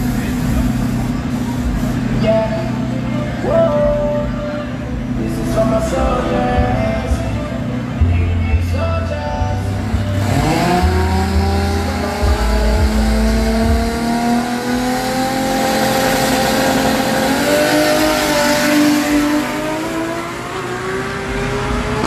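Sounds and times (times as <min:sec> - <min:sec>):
racing car engine accelerating: 0:09.5 - 0:22.0.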